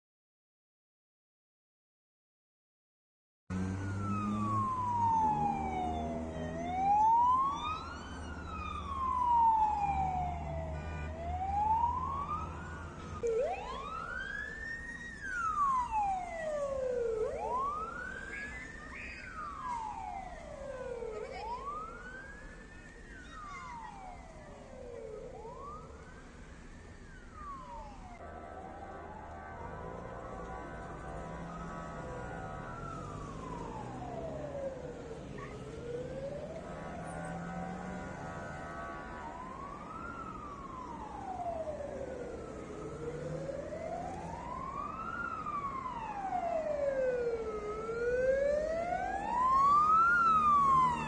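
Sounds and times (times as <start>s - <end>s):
engine hum: 3.5s - 14.5s, 27.4s - 51.0s
fast-rising wailing siren: 3.5s - 51.0s
slow wailing siren: 3.5s - 51.0s.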